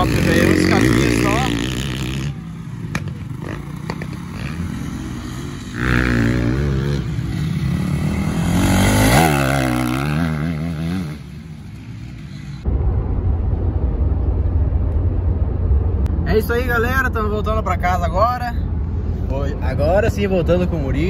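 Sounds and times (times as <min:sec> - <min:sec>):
motocross bike engine revving: 0:00.0 - 0:12.6.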